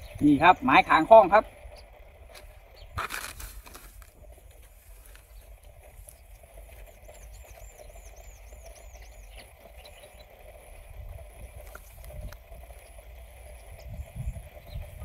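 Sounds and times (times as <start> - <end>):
rustling and handling noise: 2.4 - 5.4.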